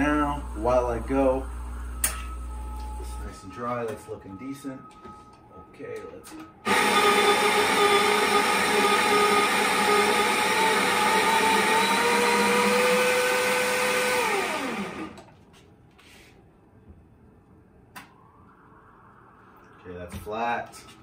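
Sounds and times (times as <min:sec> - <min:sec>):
motor winding down: 0:06.6 - 0:15.3
coffee grinder motor whine: 0:06.7 - 0:15.3.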